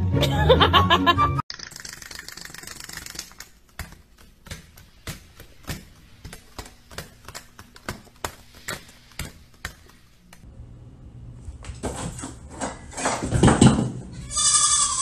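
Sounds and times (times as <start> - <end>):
parrots tapping on tile floor: 1.8 - 10.4.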